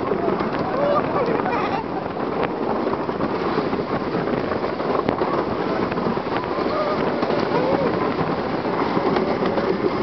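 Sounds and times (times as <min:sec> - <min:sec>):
roller coaster on track: 0:00.0 - 0:10.0
wind rushing over microphone: 0:00.0 - 0:10.0.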